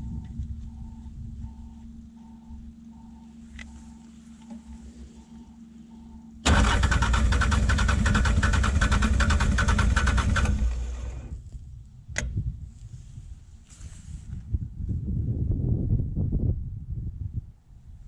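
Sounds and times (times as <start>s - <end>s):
starter cranking diesel engine: 6.4s - 11.4s.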